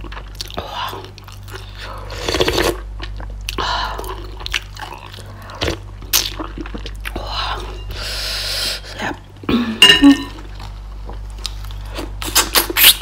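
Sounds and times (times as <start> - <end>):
chewing: 0.0 - 7.8.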